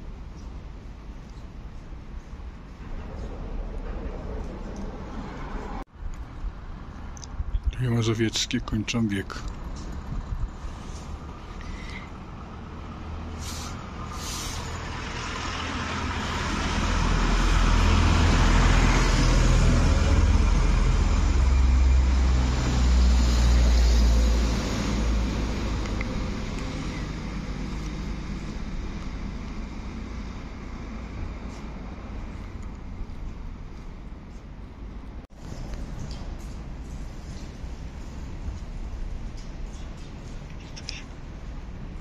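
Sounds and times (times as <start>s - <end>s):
cars passing: 2.2s - 42.0s
heavy vehicle engine rumble: 9.3s - 42.0s.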